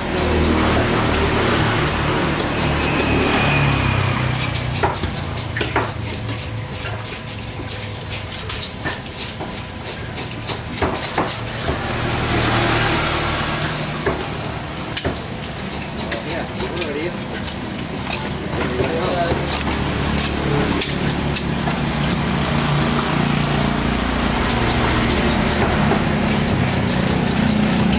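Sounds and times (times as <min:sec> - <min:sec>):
low engine drone: 0:00.0 - 0:04.9, 0:11.4 - 0:15.6
knife cutting on wooden block: 0:00.0 - 0:12.8, 0:13.7 - 0:27.9.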